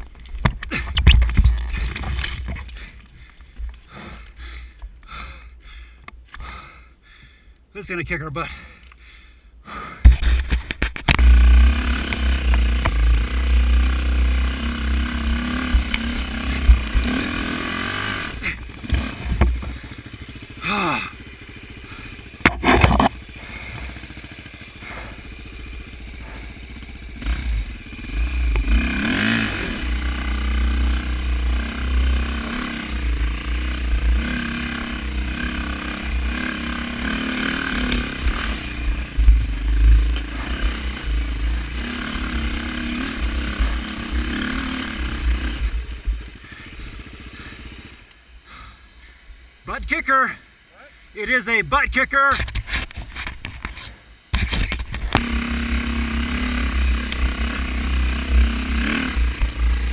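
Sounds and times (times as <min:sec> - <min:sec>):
dirt bike engine revving: 0:10.0 - 0:50.5, 0:54.3 - 0:59.9.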